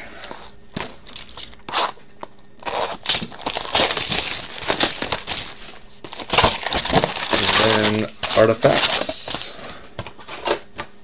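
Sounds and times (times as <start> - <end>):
card pack wrappers crinkling: 1.0 - 9.5.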